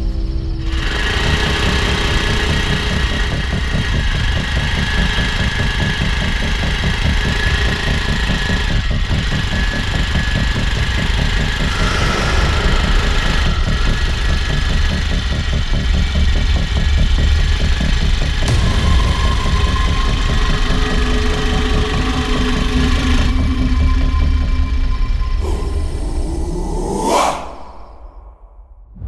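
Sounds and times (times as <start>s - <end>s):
motorcycle engine running: 0.6s - 23.8s.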